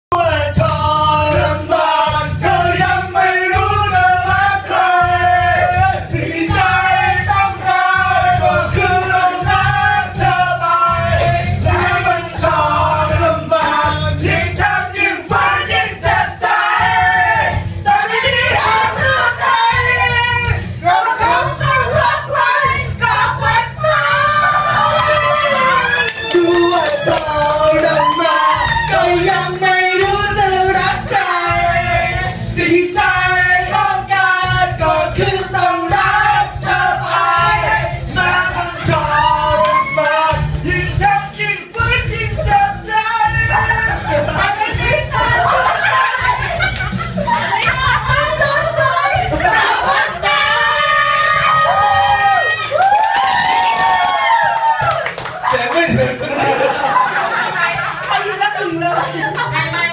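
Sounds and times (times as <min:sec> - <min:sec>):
karaoke singing into microphones: 0:00.0 - 0:59.9
recorded backing track: 0:00.1 - 0:59.9
person singing into a microphone: 0:26.3 - 0:46.3.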